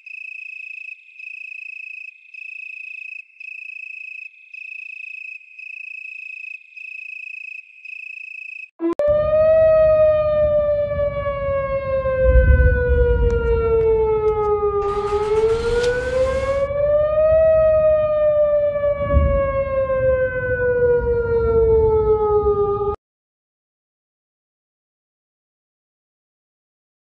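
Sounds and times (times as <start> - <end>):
warning siren wailing: 6.0 - 23.0.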